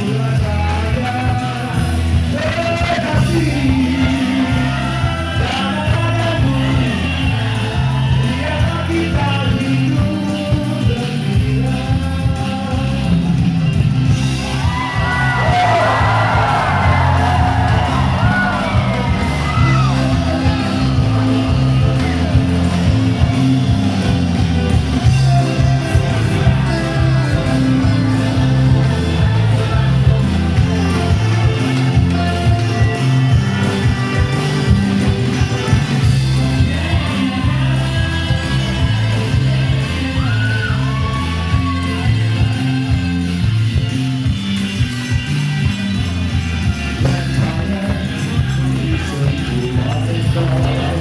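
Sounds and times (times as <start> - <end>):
man singing into microphone: 0.0 - 13.8, 25.0 - 42.4, 46.9 - 51.0
bass line of short repeated notes: 0.0 - 40.2
electric guitar: 0.0 - 51.0
live band music: 0.0 - 51.0.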